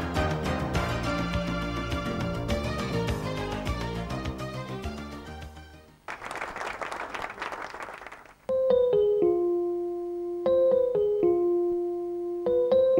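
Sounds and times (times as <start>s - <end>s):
music: 0.0s - 6.1s, 8.5s - 12.9s
electric piano jingle: 8.5s - 9.7s, 10.4s - 11.7s, 12.4s - 12.9s.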